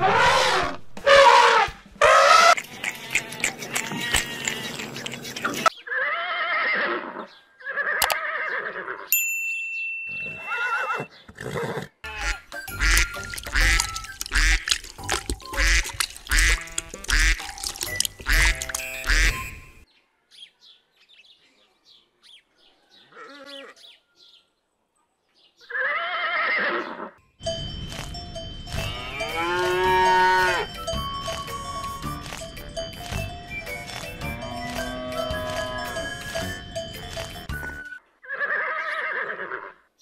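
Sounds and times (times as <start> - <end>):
horse whinnying: 5.9 - 9.1, 10.4 - 11.9, 25.7 - 27.1
ducks quacking: 12.1 - 19.6.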